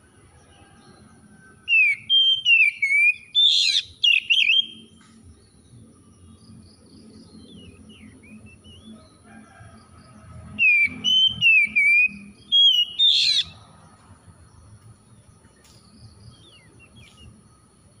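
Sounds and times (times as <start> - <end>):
bird chirping and whistling: 1.6 - 4.9, 10.6 - 13.6.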